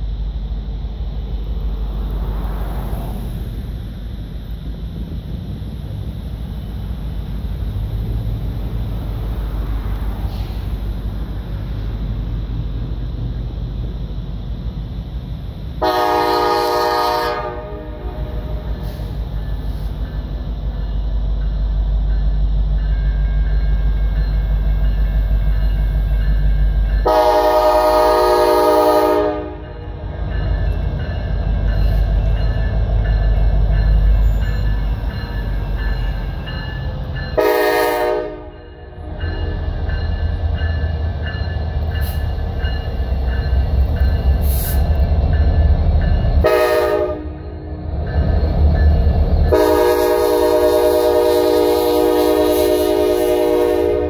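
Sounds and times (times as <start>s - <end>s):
diesel locomotive engines: 0.0s - 54.0s
train air horn blasts: 15.8s - 19.2s, 27.0s - 30.0s, 37.4s - 39.6s, 46.4s - 47.7s, 49.5s - 54.0s.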